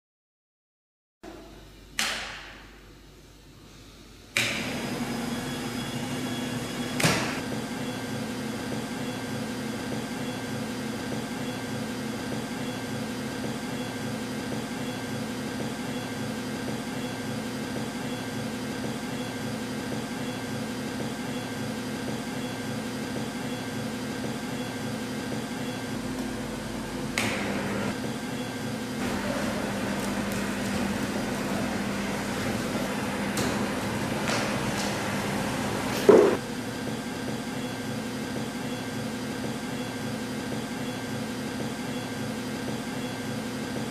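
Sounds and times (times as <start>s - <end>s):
blower fan humming: 1.3s - 10.1s, 23.9s - 38.4s.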